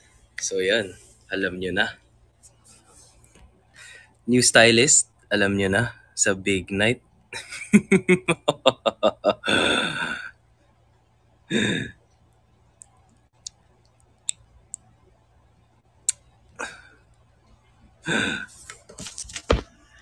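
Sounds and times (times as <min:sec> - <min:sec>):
man laughing: 0:07.4 - 0:10.3, 0:11.5 - 0:11.9
man sighing: 0:09.4 - 0:10.3, 0:11.5 - 0:12.0, 0:16.6 - 0:17.0, 0:18.1 - 0:18.6.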